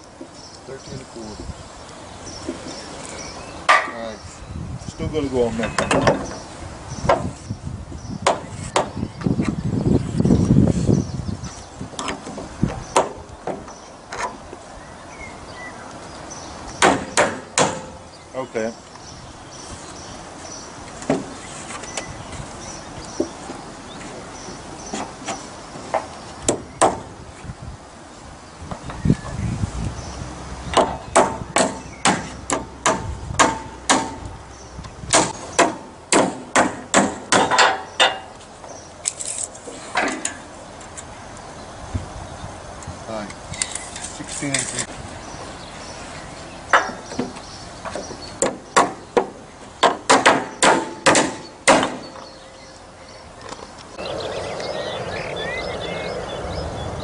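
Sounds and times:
hammer nailing wooden boards: 8.2 - 9.0, 16.8 - 18.0, 25.9 - 27.1, 30.7 - 34.2, 35.1 - 38.2, 46.7 - 52.2.

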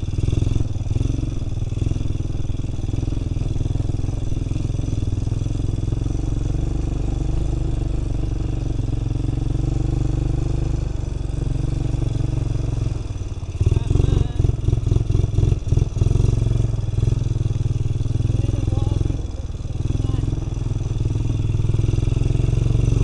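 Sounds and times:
quad bike engine running: 0.0 - 23.0.

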